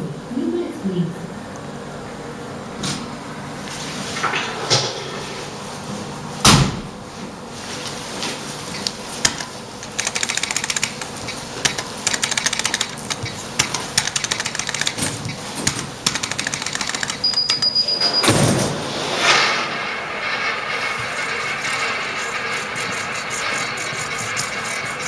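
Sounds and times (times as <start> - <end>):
roulette terminal clicking fast: 9.3 - 15.0, 16.0 - 17.8.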